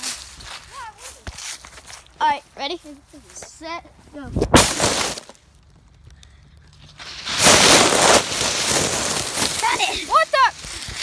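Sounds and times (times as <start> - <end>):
dry leaves rustling and crunching: 0.0 - 2.2, 6.8 - 11.0.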